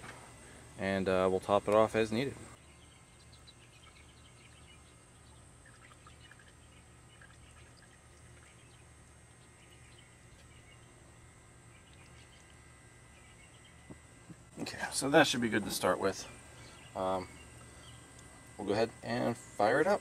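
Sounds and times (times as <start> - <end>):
low steady hum: 0.0 - 20.0
bird chirps: 2.6 - 14.0, 16.2 - 18.2.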